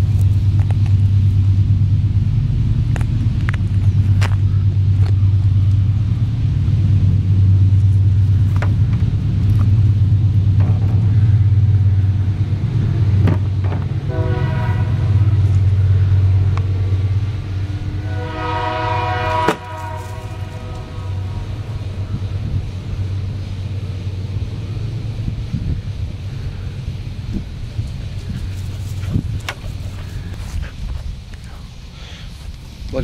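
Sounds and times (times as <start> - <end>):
steady low rumble: 0.0 - 33.0
drawn-out horn-like tone: 13.8 - 22.4.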